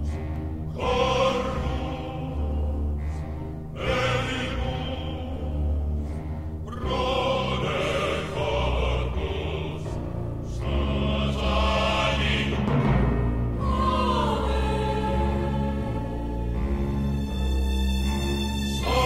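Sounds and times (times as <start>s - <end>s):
choral voices singing: 0.0s - 19.0s
timpani: 6.0s - 19.0s.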